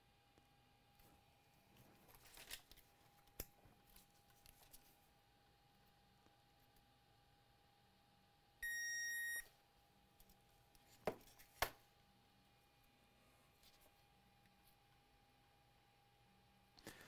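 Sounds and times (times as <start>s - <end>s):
multimeter beep: 8.6s - 9.5s.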